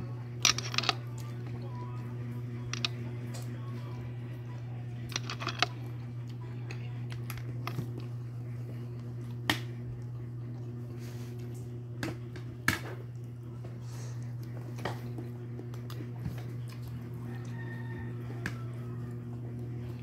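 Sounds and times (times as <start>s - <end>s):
low hum: 0.0s - 20.0s
snail shells clicking: 5.1s - 5.7s.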